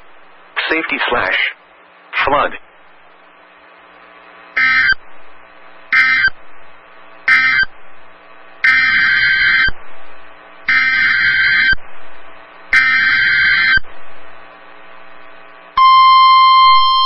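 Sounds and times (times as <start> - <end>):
buzzing digital data bursts: 4.6 - 5.1, 5.9 - 6.4, 7.3 - 7.8, 8.6 - 9.8, 10.6 - 11.8, 12.7 - 13.9.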